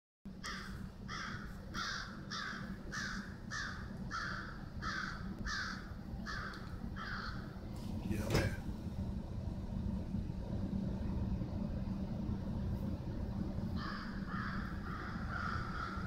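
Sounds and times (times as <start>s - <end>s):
low background hum: 0.3s - 16.0s
crow cawing: 0.4s - 7.6s, 13.8s - 16.0s.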